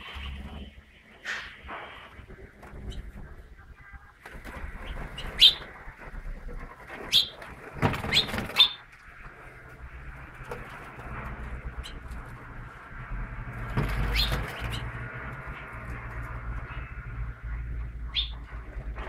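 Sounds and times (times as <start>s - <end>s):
wings fluttering: 0.0s - 19.0s
finches chirping: 4.8s - 5.7s, 7.1s - 7.4s, 18.1s - 18.5s.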